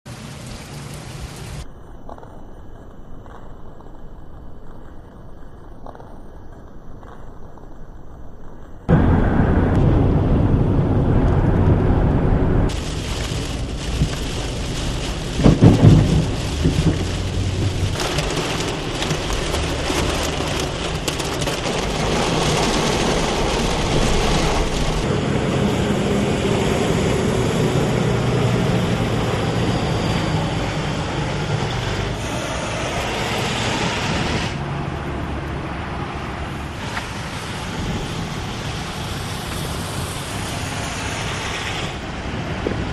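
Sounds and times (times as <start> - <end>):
steady rain: 0.1 - 1.7, 8.9 - 42.9
thunder rumbling: 8.8 - 41.3.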